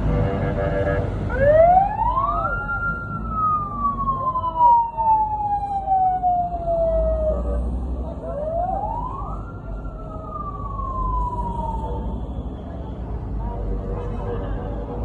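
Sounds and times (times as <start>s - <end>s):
fire truck siren wailing: 0.8s - 12.6s.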